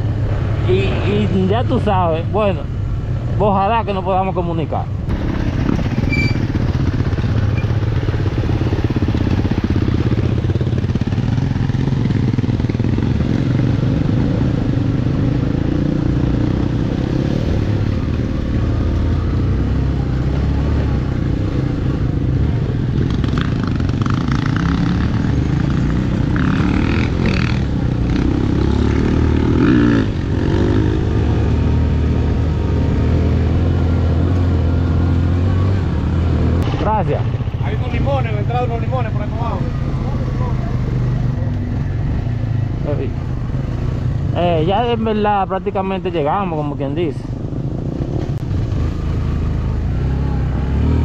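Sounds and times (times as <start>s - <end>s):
motorcycle engine running: 5.0s - 51.0s.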